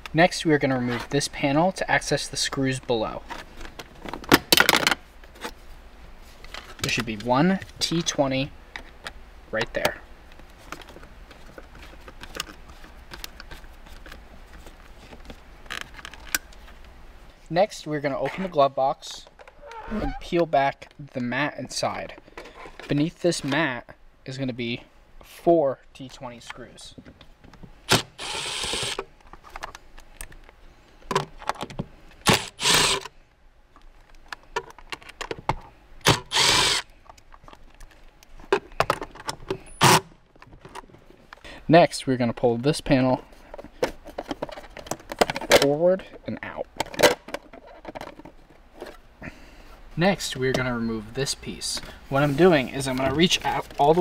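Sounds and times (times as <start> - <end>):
cordless driver running: 27.9 - 29.0, 32.3 - 33.1, 36.1 - 36.8
screwdriver clicks and scrapes: 36.3 - 36.9.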